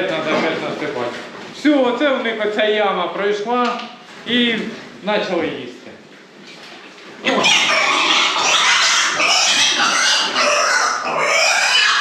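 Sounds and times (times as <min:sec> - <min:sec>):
piglet squealing loudly: 0:07.3 - 0:12.0.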